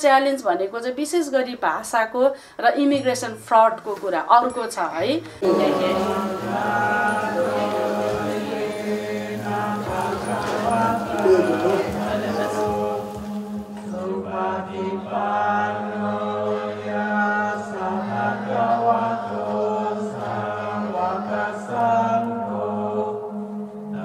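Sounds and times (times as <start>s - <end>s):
congregation chanting in unison: 5.4s - 24.0s.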